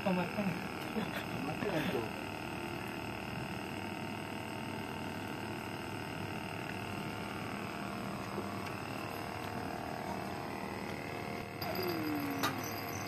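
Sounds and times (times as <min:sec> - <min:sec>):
constant drone with held tones: 0:00.0 - 0:13.0.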